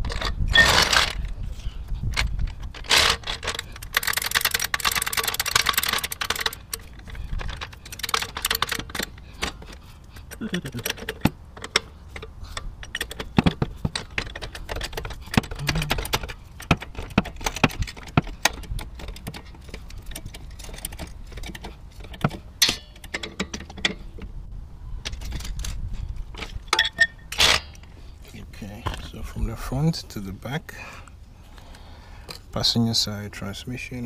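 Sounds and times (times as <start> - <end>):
floor jack pumping clicks and clanks: 2.1 - 24.3
metal jack stand knock and rattle: 2.2 - 24.3, 25.0 - 27.8.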